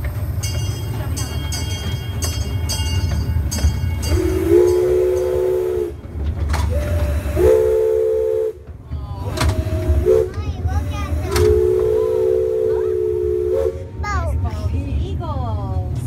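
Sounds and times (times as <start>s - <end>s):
steam train rumbling: 0.0s - 16.0s
steam whistle blasts: 4.1s - 6.0s, 6.7s - 8.6s, 9.4s - 10.4s, 11.1s - 13.9s.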